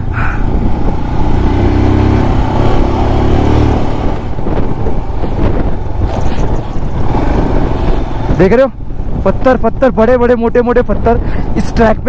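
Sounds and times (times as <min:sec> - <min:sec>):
motorcycle engine running: 0:00.0 - 0:09.2.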